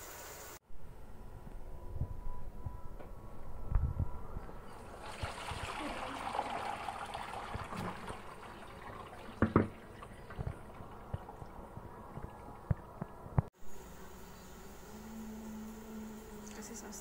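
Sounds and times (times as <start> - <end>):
water running in sink: 4.7 - 13.1.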